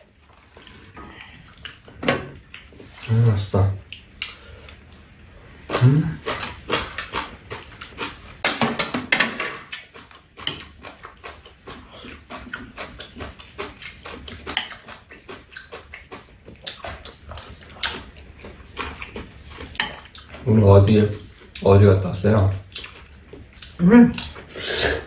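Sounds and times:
chewing and mouth noises: 0.2 - 3.2, 5.7 - 8.4, 9.7 - 21.7, 22.5 - 25.0
utensils clicking on steel bowls: 6.2 - 7.3.

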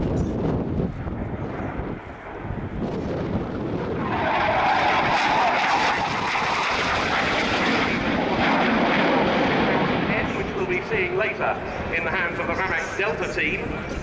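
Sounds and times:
jet engine roar: 0.0 - 14.0.

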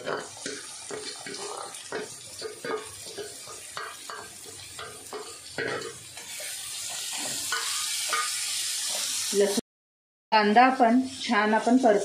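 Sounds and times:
spatula stirring and scraping: 0.0 - 9.2
onion frying in hot oil: 0.0 - 9.6, 10.4 - 12.0.

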